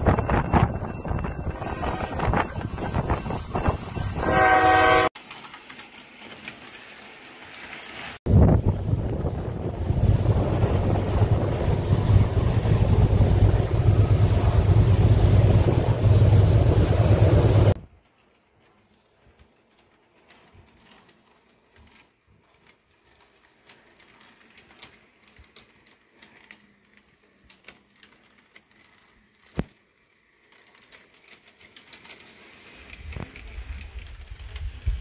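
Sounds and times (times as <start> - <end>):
model train running on track: 0.0 - 35.0
small clicks and ticks: 18.0 - 35.0.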